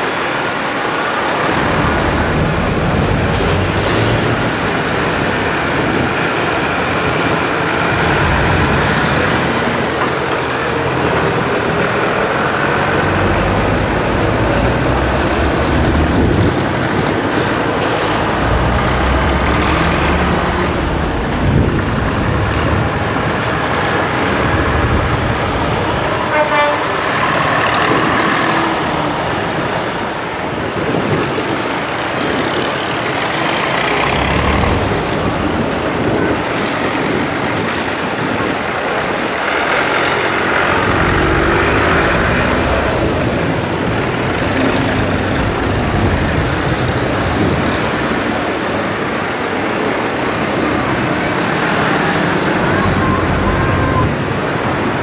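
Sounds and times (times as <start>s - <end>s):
tractor engines running: 0.0s - 55.0s
horn toots: 26.2s - 27.2s.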